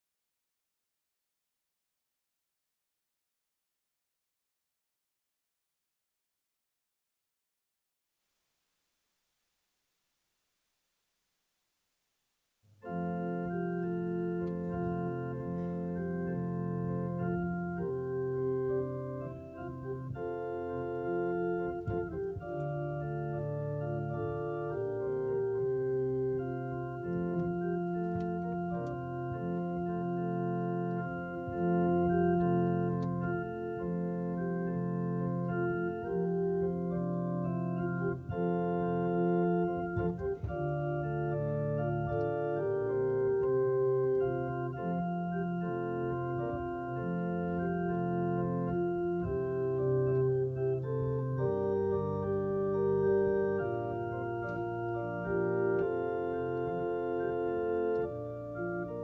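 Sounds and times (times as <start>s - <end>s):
organ playing sustained chords: 12.8s - 59.0s.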